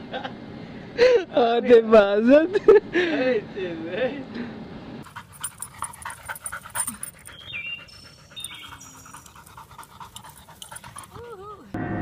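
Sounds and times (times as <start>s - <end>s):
dog panting quickly: 5.0s - 11.4s
high chirps: 6.3s - 9.5s.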